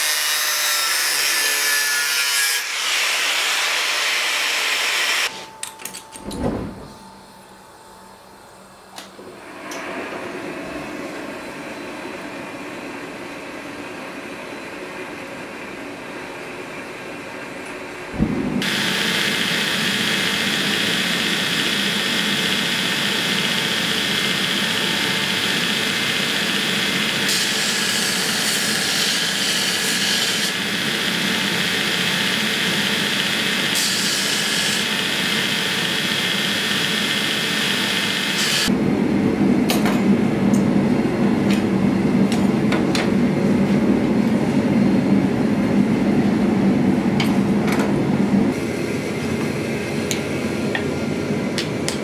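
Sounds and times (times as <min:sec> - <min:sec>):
belt grinder running: 0:18.6 - 0:38.7.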